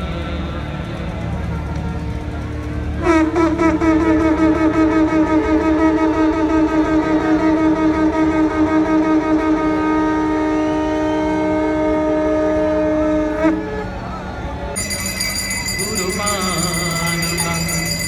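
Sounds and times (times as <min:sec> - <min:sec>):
conch shell horn blowing: 0:02.9 - 0:14.0.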